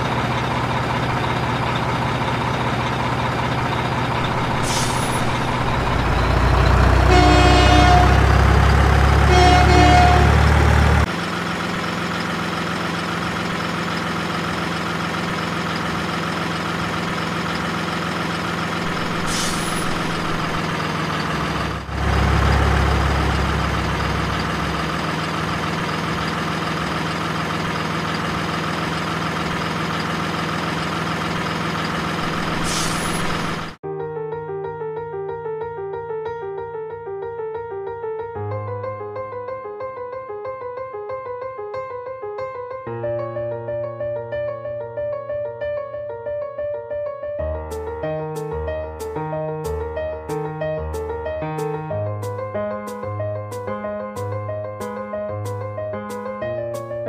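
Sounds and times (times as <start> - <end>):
truck engine running: 0.0 - 33.8
horn toots: 6.9 - 8.5, 9.2 - 11.0.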